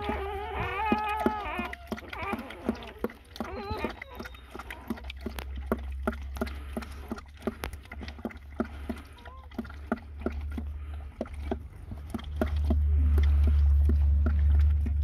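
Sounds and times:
puppy squeaking: 0.0 - 4.9
dog licking and chewing: 0.0 - 15.0
low rumble: 9.5 - 15.0.

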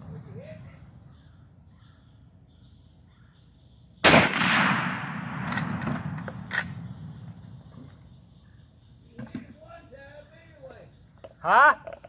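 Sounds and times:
rifle shot: 4.0 - 7.4.

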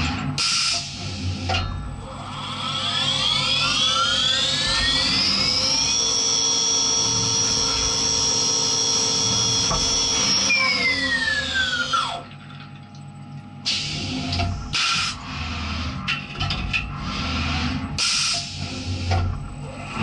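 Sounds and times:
machine spindle whine: 0.0 - 12.3, 13.7 - 20.0.

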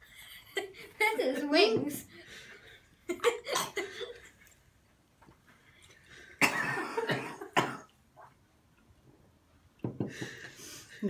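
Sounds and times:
woman coughing: 3.4 - 4.0, 6.4 - 7.9.

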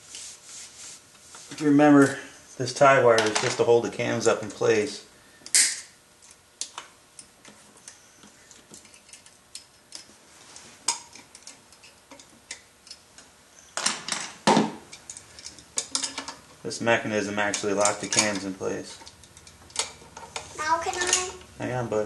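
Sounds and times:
metal tools clattering: 13.8 - 16.4, 17.4 - 20.3.

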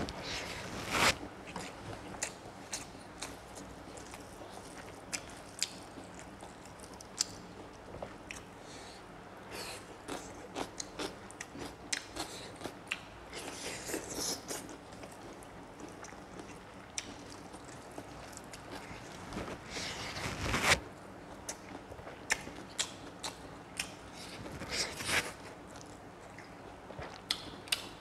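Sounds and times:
man chewing crunchy food: 1.4 - 8.5, 9.5 - 19.8.

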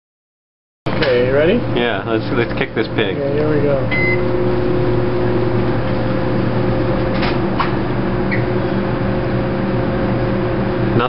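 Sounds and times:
microwave oven humming: 0.9 - 11.0
microwave keypad beep: 3.9 - 4.3.

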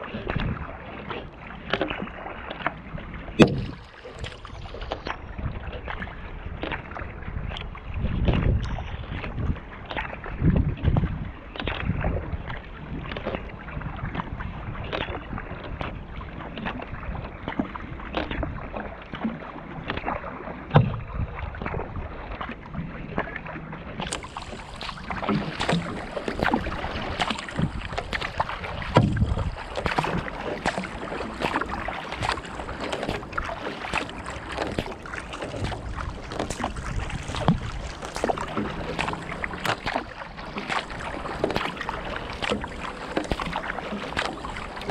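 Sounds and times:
paddle splashes: 0.0 - 44.9
water lapping along hull: 0.0 - 44.9.

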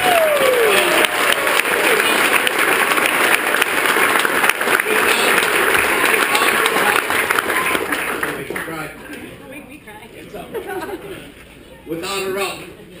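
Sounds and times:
person cheering: 0.0 - 2.0
audience applauding: 0.0 - 9.0.

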